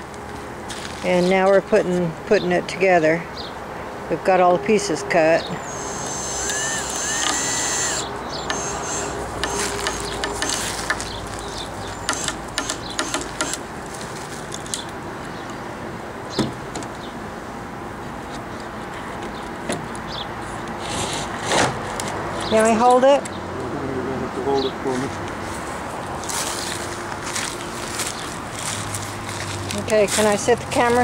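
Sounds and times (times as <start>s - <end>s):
power drill whining: 5.6s - 13.6s.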